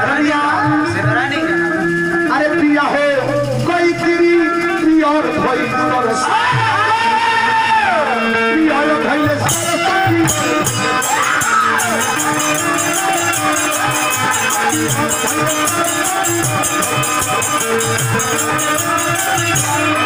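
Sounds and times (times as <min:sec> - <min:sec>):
rattling jingle beat: 0:00.0 - 0:06.7, 0:08.5 - 0:20.0
melody with gliding notes: 0:08.0 - 0:20.0.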